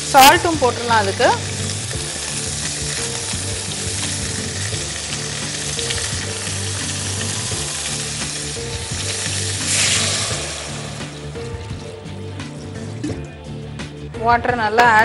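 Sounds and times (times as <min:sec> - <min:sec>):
water pouring into a pot: 0:00.0 - 0:13.7
background music: 0:00.0 - 0:15.0.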